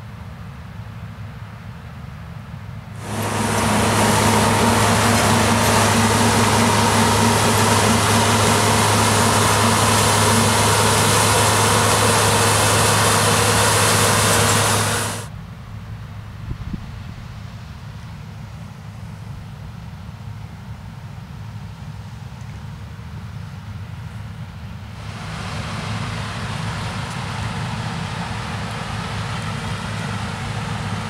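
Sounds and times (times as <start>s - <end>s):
combine harvester drone: 3.0s - 15.3s, 23.7s - 31.0s
low hum: 3.0s - 15.3s.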